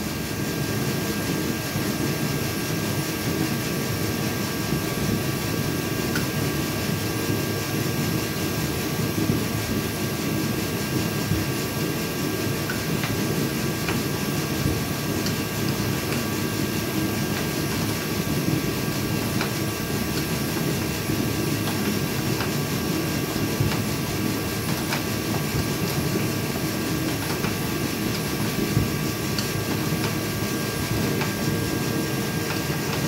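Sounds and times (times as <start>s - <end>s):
steady mechanical drone: 0.0s - 33.0s.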